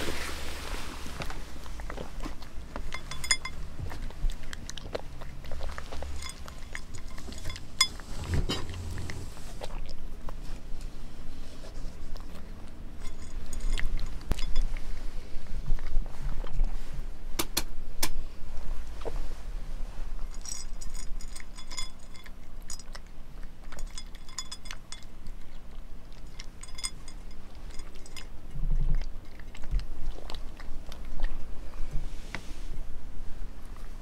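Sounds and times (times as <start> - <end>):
cat crunching dry kibble: 0.1 - 10.9, 11.9 - 16.8, 20.1 - 31.8
kibble clinking against plate: 2.4 - 9.2, 12.9 - 14.8, 20.3 - 29.8.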